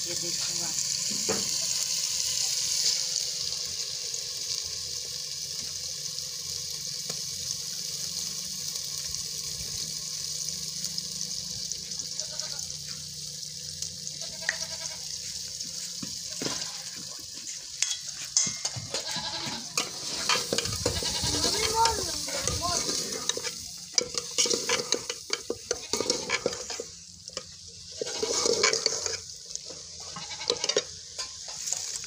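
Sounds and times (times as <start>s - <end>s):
curry sizzling in a pot: 0.0s - 32.0s
metal utensils clinking: 17.8s - 29.2s, 30.2s - 32.0s.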